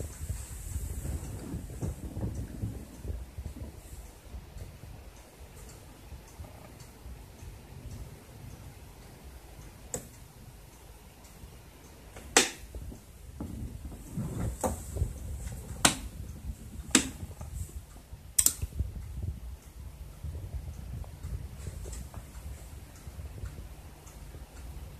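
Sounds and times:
low rumble: 12.7 - 24.9
relays clicking: 15.8 - 19.8.

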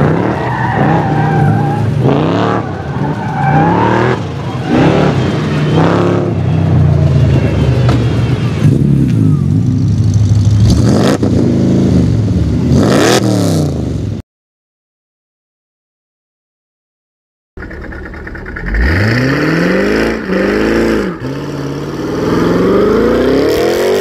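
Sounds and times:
car engine revving hard: 0.0 - 6.4, 10.6 - 13.8, 18.6 - 24.0.

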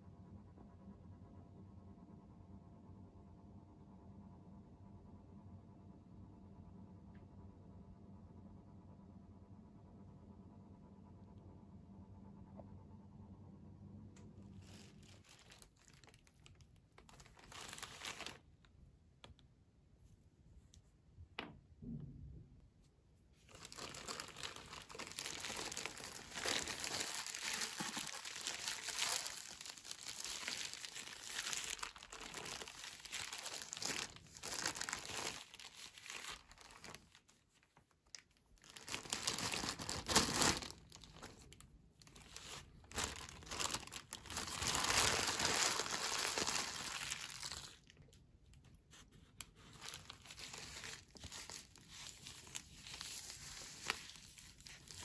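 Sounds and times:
plastic bags crinkling and tearing: 14.5 - 18.5, 23.4 - 48.2, 49.3 - 55.0.

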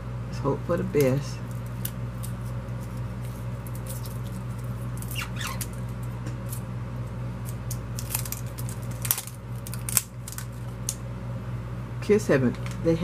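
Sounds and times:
plastic wrapping crinkling: 1.4 - 6.6, 7.4 - 11.0.

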